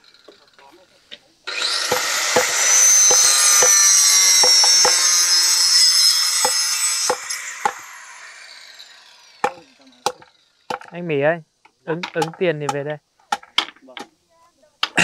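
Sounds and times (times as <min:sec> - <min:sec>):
power saw cutting wood: 0:00.0 - 0:00.9, 0:01.5 - 0:10.9.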